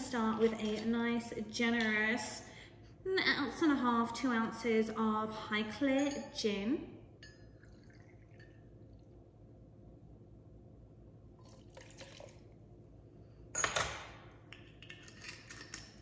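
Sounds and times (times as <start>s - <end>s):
liquid poured onto ice in shaker: 11.4s - 12.5s
liquid poured into metal jigger: 11.4s - 12.6s.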